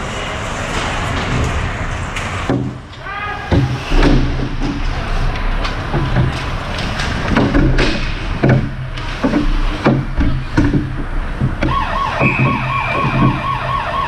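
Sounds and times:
hockey knocks and clacks on ice: 0:03.6 - 0:13.5
wavering siren-like wail: 0:11.7 - 0:14.0.

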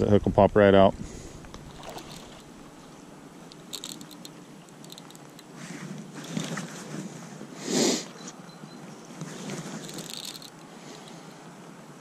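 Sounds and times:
flowing river water: 0:01.5 - 0:05.6.

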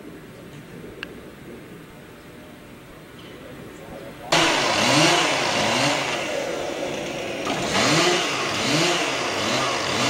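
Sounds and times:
chainsaw revving: 0:04.3 - 0:10.0.

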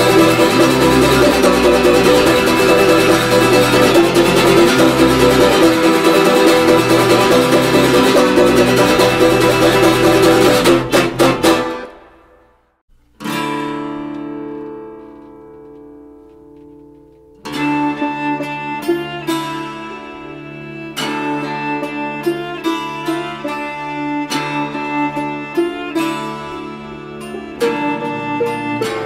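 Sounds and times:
loud dense music: 0:00.0 - 0:12.2
acoustic guitar strum: 0:00.0 - 0:29.0.

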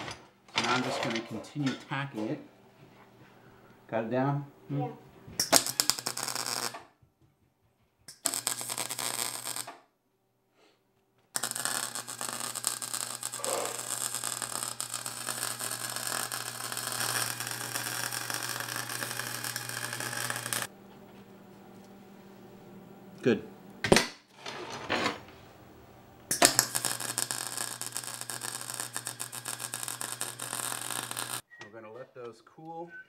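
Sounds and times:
welder arc crackling: 0:05.4 - 0:06.8, 0:08.1 - 0:09.8, 0:11.4 - 0:20.7, 0:26.3 - 0:31.4.

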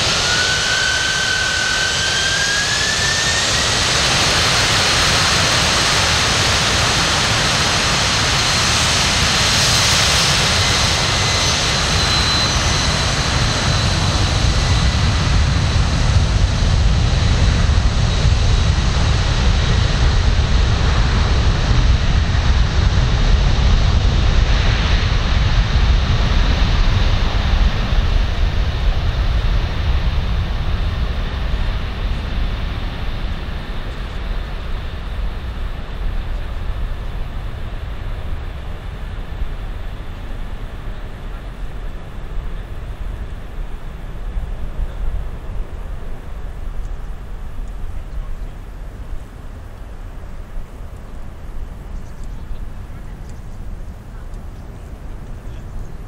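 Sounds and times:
jet engines whining: 0:00.0 - 0:56.0
low engine rumble: 0:12.6 - 0:56.0.

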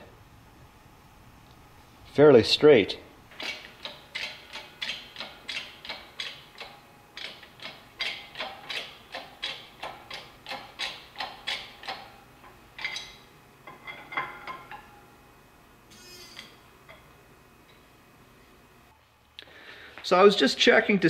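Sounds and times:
hydraulic press pump clicking: 0:03.3 - 0:12.2.

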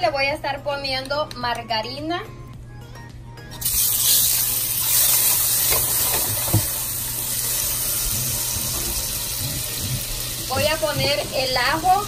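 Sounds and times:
margarine sizzling in hot pan: 0:03.6 - 0:12.0.

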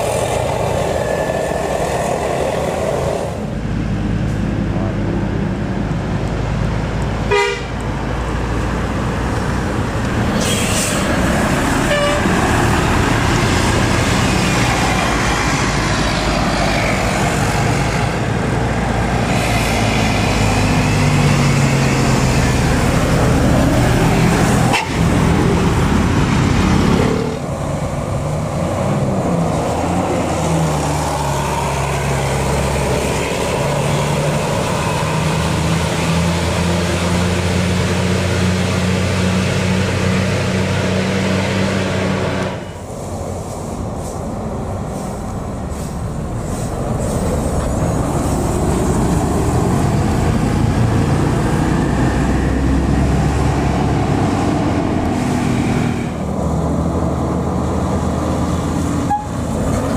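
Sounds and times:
buses driving uphill: 0:00.0 - 0:59.9
horn toot: 0:07.3 - 0:07.7, 0:11.8 - 0:12.4.

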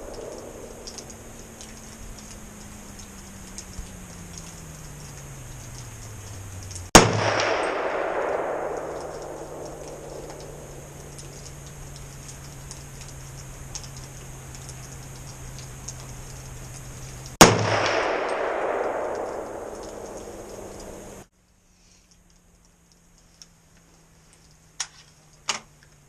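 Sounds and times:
rifle shots with echo: 0:00.0 - 0:00.9, 0:06.9 - 0:11.1, 0:17.4 - 0:21.2
faint steady low hum: 0:00.0 - 0:26.0.

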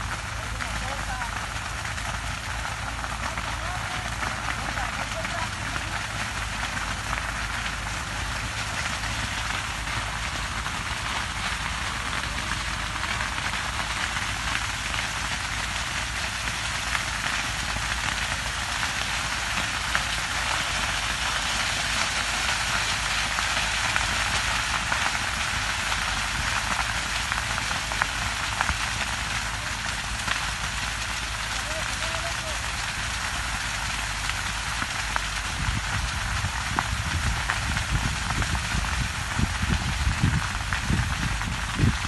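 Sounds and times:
fire crackling: 0:00.0 - 0:42.0
sharp fire pops: 0:00.0 - 0:42.0.

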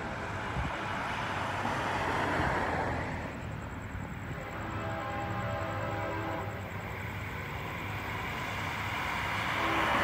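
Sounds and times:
train rumbling: 0:00.0 - 0:10.0
train air horn blast: 0:04.4 - 0:06.6, 0:09.4 - 0:10.0.

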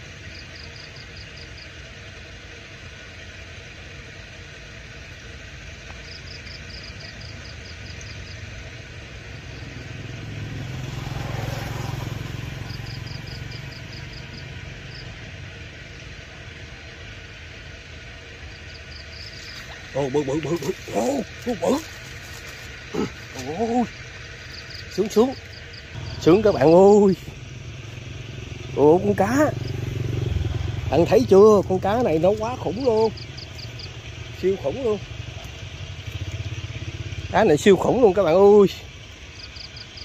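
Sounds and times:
motor engine passing by: 0:06.0 - 0:40.0
rapid high chirps: 0:18.5 - 0:30.1, 0:30.8 - 0:37.8.

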